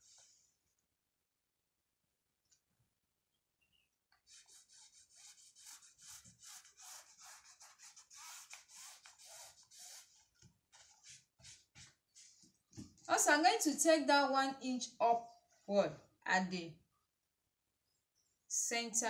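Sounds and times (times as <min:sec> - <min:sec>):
pen scratching along plastic ruler: 0:04.3 - 0:12.4.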